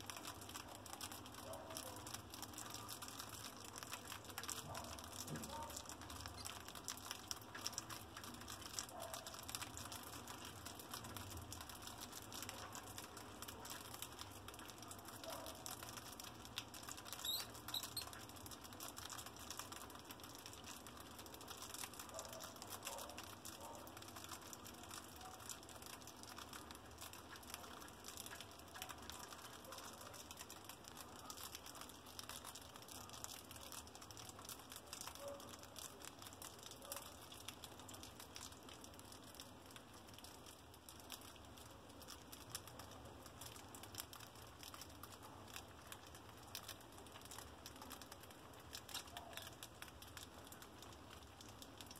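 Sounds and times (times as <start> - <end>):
mice nibbling and scrabbling: 0.0 - 39.6.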